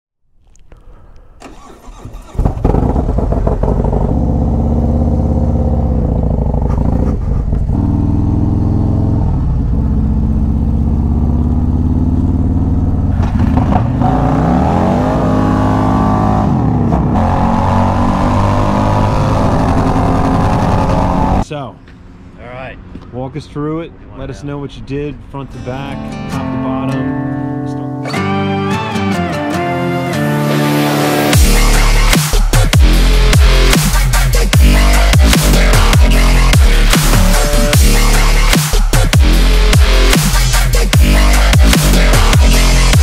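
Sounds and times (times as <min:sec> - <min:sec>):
motorcycle engine starting and revving: 0:01.4 - 0:21.4.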